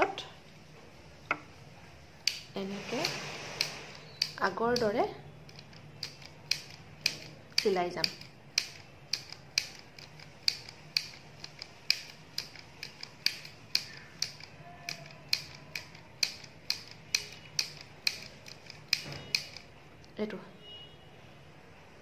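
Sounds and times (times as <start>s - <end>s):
mini sewing machine clicking: 2.2s - 19.7s.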